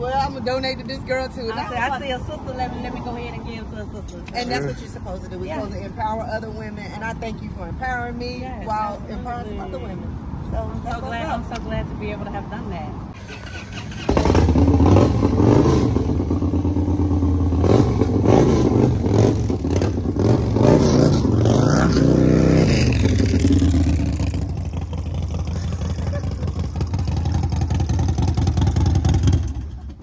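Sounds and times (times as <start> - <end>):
motorcycle engine revving: 13.2 - 30.0.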